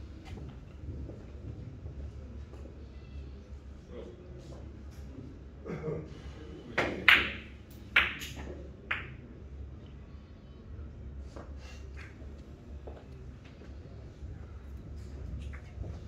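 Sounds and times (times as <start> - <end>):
cue striking ball: 6.8 - 9.1
billiard balls clicking: 6.8 - 9.2.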